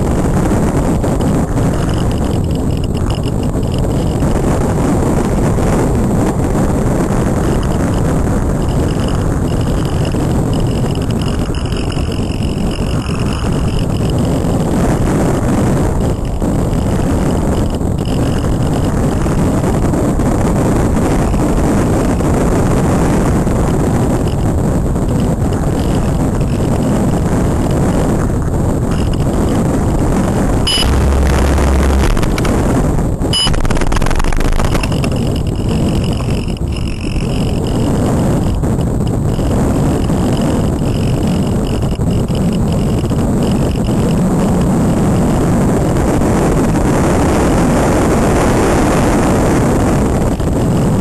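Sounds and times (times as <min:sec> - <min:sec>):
faint high whine: 0:00.0 - 0:45.2
loud rush of airflow: 0:13.0 - 0:36.8.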